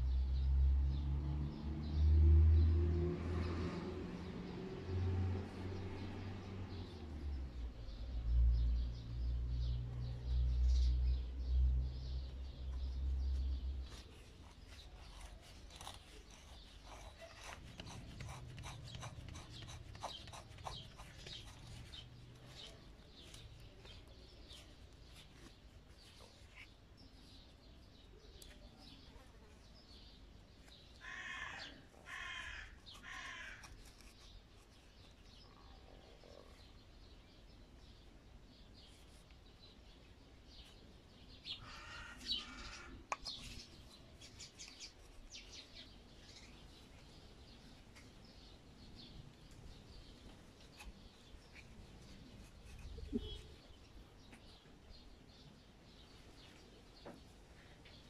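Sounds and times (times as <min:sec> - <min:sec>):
bird calling: 0:52.6 - 0:53.8.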